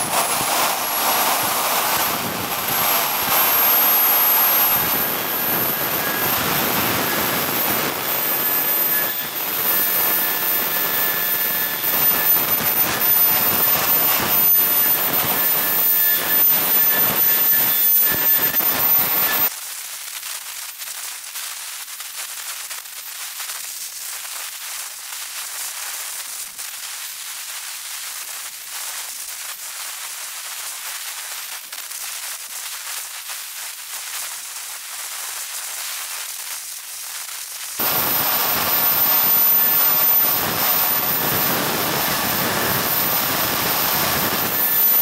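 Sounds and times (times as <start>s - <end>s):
high-pitched turbine whine: 0.0s - 19.5s, 37.8s - 45.0s
jet turbine roaring: 0.0s - 19.5s, 37.8s - 45.0s
crackling noise: 0.0s - 45.0s.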